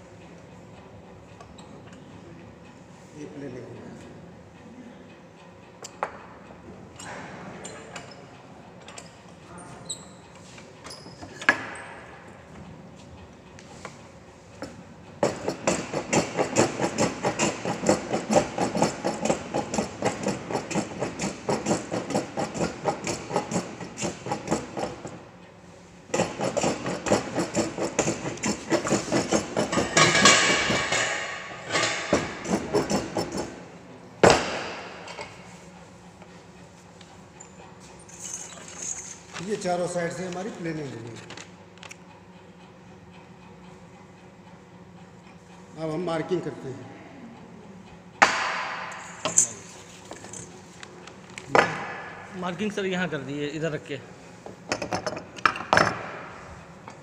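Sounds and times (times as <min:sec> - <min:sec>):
hand plane shaving wood: 0:15.2 - 0:25.1, 0:26.2 - 0:30.7.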